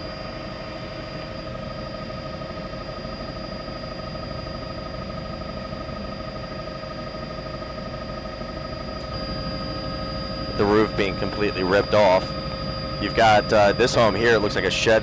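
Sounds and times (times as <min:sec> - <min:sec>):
helicopter cabin drone: 0:00.0 - 0:15.0
whining tones: 0:00.0 - 0:15.0.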